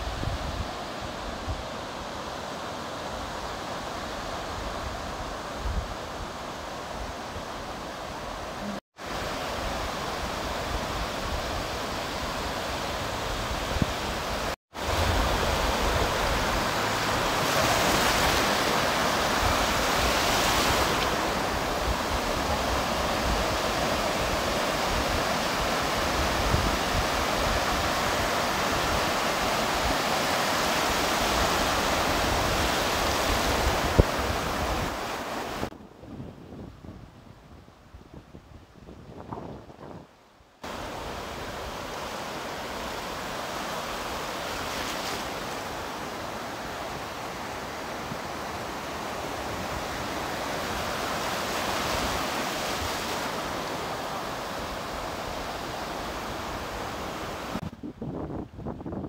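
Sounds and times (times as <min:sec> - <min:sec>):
wind on microphone: 0:00.0 - 0:02.4, 0:03.1 - 0:42.0, 0:48.0 - 0:59.0
surf breaking on beach: 0:08.6 - 0:35.8, 0:40.6 - 0:57.7.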